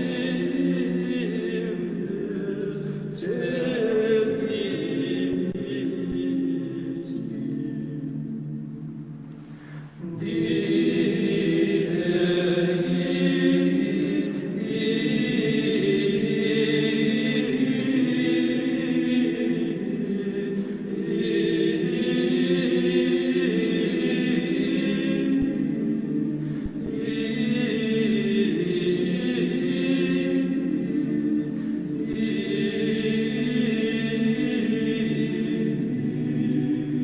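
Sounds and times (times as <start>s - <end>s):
choir chanting long held notes: 0.0s - 37.0s.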